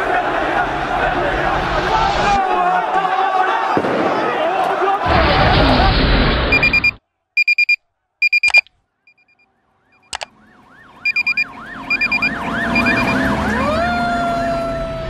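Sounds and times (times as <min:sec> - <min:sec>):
high electronic beeping: 0:06.5 - 0:09.4, 0:11.0 - 0:13.3
sharp clicks: 0:06.6 - 0:08.8, 0:10.1 - 0:10.3
emergency siren: 0:09.4 - 0:15.0.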